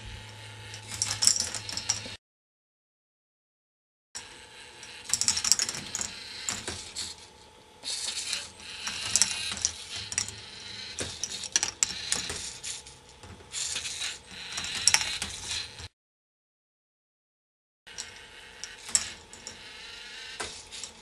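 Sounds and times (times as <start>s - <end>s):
balls rolling on plastic tracks: 0.8s - 2.2s, 4.8s - 7.2s, 7.9s - 15.9s, 17.9s - 21.0s.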